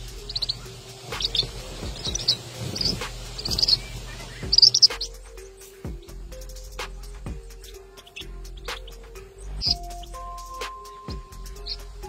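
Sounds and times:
bird chirping in quick bursts: 0:00.2 - 0:06.1.

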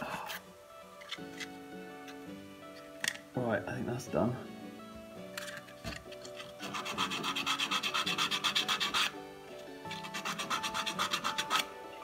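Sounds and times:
scrubbing copper pipe: 0:06.4 - 0:09.2.

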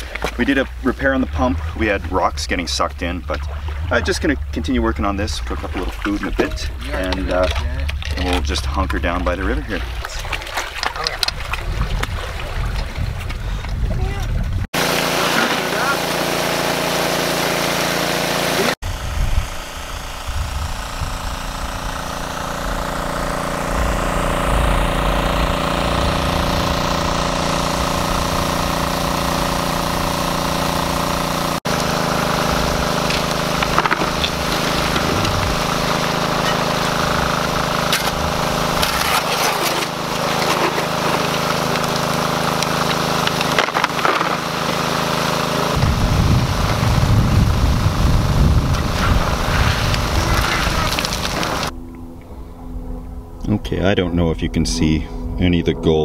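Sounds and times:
water rushing: 0:00.0 - 0:13.2, 0:14.8 - 0:18.8, 0:21.9 - 0:51.8
small water pump engine running: 0:00.0 - 0:13.8, 0:14.7 - 0:51.9
shovel scraping and dumping gravel: 0:31.7 - 0:45.7, 0:49.0 - 0:51.7.

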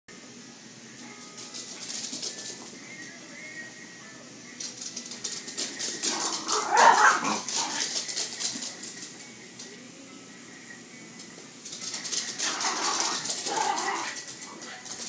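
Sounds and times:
dog claws skittering on floor: 0:01.4 - 0:02.8, 0:04.6 - 0:09.7, 0:11.6 - 0:15.0
dogs play barking: 0:06.0 - 0:08.0, 0:12.1 - 0:15.0.

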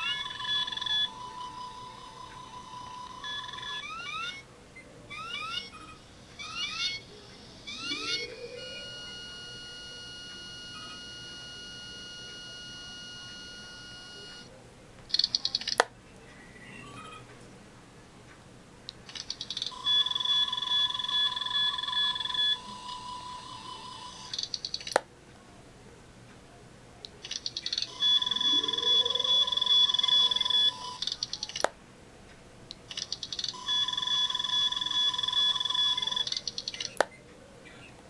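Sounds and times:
electronic scanning tones: 0:00.0 - 0:04.4, 0:05.1 - 0:14.5, 0:19.3 - 0:24.9, 0:27.4 - 0:31.5, 0:33.1 - 0:37.0
sharp click: 0:24.3 - 0:25.1.

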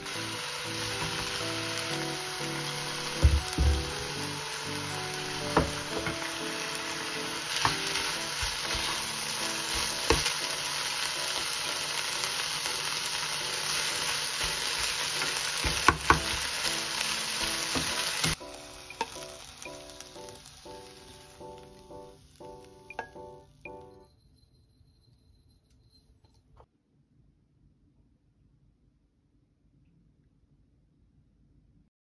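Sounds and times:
food sizzling in a frying pan: 0:00.0 - 0:23.4
wooden spatula knocking pan: 0:03.0 - 0:04.1, 0:05.4 - 0:06.3, 0:14.4 - 0:16.7.

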